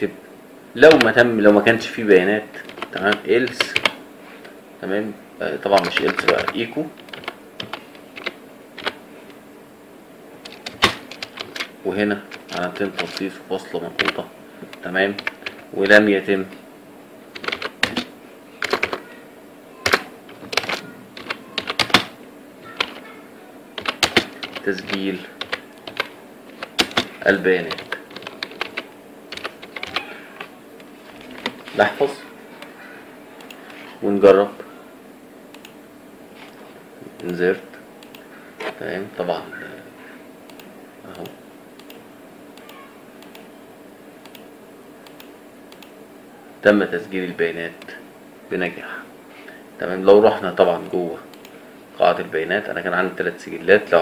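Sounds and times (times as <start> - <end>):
steady low hum: 0.0 - 54.0
computer keyboard typing: 0.9 - 1.2, 2.6 - 4.0, 5.7 - 9.0, 10.4 - 13.3, 14.0 - 16.0, 17.3 - 19.0, 19.8 - 23.0, 23.8 - 31.8.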